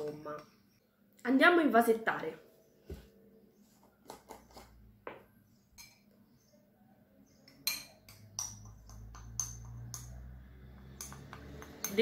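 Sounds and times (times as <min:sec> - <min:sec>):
metal spoon clinking against glass: 0:07.5 - 0:12.0.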